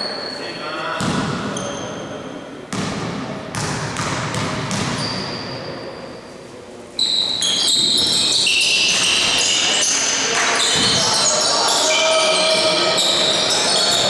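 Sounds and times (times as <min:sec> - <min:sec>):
sneakers squeaking on gym floor: 0:00.0 - 0:03.0, 0:03.6 - 0:06.1, 0:07.0 - 0:14.0
basketball bouncing: 0:01.0 - 0:01.4, 0:02.7 - 0:05.3
players' voices: 0:09.2 - 0:14.0.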